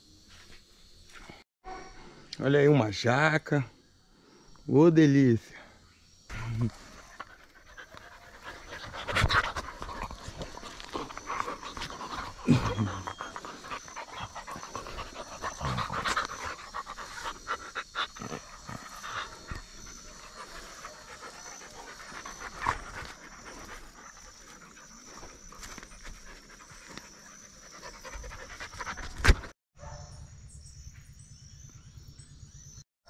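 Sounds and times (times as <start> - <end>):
dogs panting: 6.7 - 29.5.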